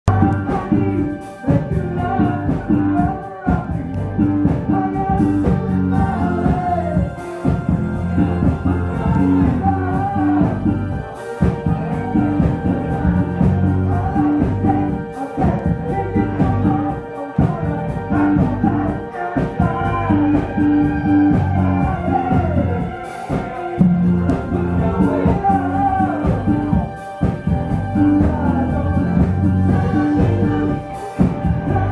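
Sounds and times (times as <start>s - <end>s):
drum kit: 0.0s - 31.9s
electric guitars: 0.0s - 31.9s.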